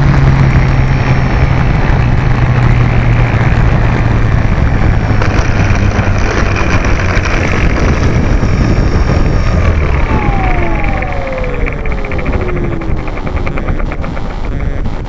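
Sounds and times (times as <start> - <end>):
electric motor and propeller whine: 0.0 - 15.0
loud steady rumble: 0.0 - 15.0
fast regular ticking: 5.0 - 15.0.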